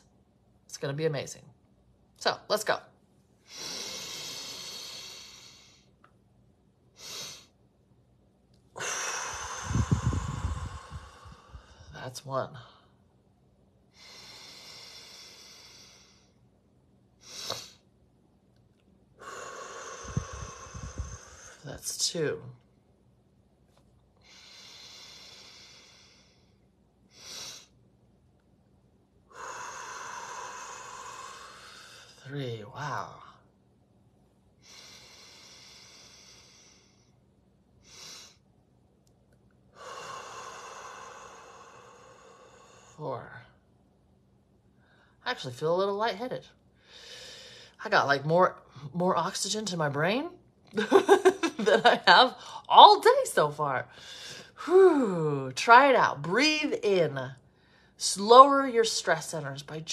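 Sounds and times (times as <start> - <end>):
woman breathing in: 3.4 - 6.0, 8.8 - 12.0, 13.9 - 16.5, 19.2 - 21.6, 24.2 - 27.8, 29.3 - 32.2, 34.6 - 37.2, 39.7 - 43.0, 46.8 - 47.8, 53.9 - 54.6
breath out through pursed lips: 8.8 - 11.9.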